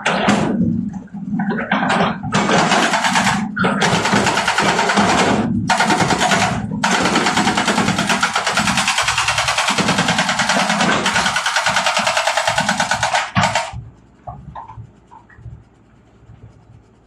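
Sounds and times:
hydraulic rock breaker hammering: 1.8s - 13.8s.

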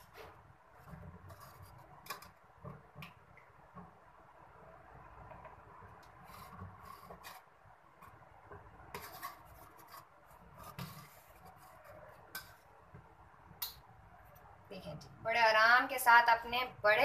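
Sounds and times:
spoon scraping pot: 0.0s - 3.0s, 5.3s - 12.7s.

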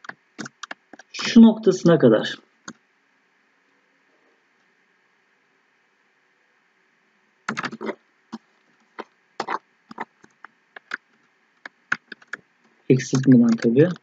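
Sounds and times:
keyboard and mouse clicking: 0.0s - 1.1s, 7.5s - 8.0s, 9.4s - 12.4s, 13.0s - 14.0s
faint hum: 0.0s - 14.0s.

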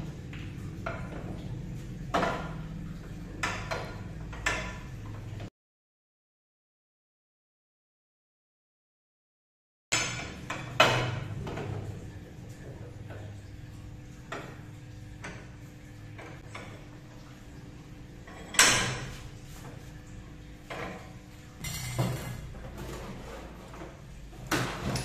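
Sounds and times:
metal clanks from bench vise: 3.4s - 4.9s, 10.0s - 11.8s, 18.2s - 19.2s, 20.7s - 23.1s.

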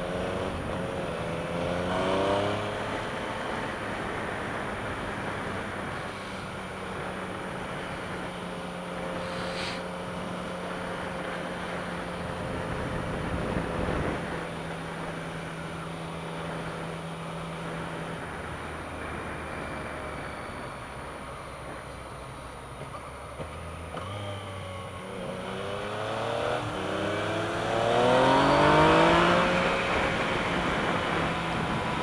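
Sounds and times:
motorcycle engine cruising: 0.0s - 32.0s
wind rush on microphone: 11.6s - 15.0s, 28.3s - 32.0s.

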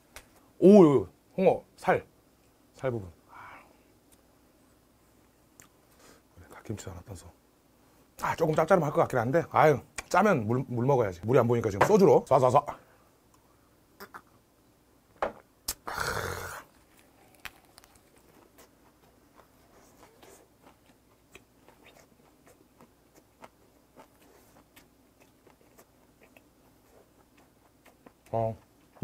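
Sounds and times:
close chewing with crunches: 16.6s - 29.0s.

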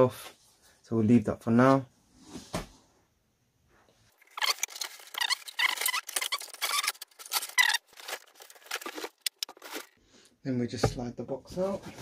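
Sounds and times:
cardboard scraping and rustling: 4.4s - 10.0s.

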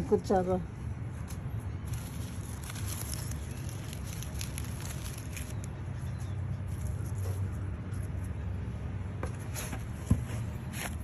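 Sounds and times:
low background rumble: 0.0s - 9.2s
dry leaves crackling and rustling: 1.2s - 8.5s.

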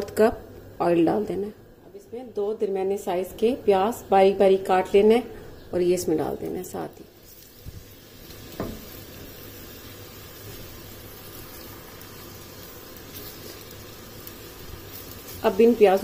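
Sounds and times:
onions sizzling in oil: 5.6s - 16.0s.

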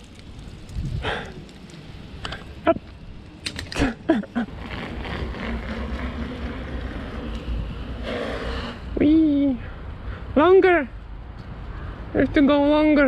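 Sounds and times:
wind on microphone: 0.0s - 1.4s
bicycle tyres rolling on pavement: 0.0s - 10.6s.

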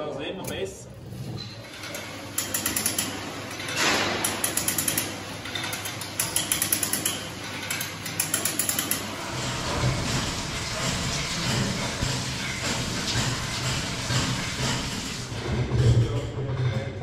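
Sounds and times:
ratchet lever clicking: 1.4s - 9.1s.

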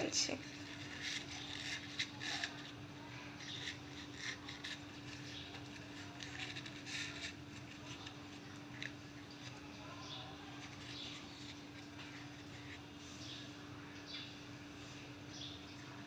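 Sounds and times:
leaves rustling and crinkling: 0.0s - 13.2s
faint steady hum: 0.0s - 16.0s.

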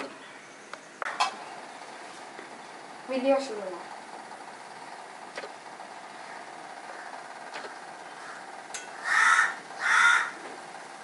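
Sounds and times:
loud harsh calls: 8.0s - 10.4s.

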